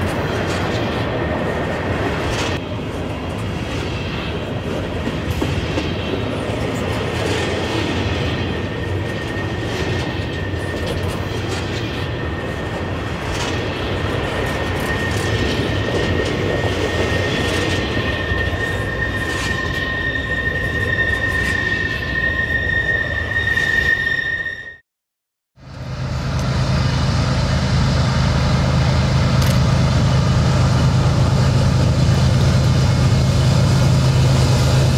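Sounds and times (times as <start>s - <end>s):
high wheel squeal: 7.4s - 24.8s
model train cars rumbling: 25.6s - 34.9s.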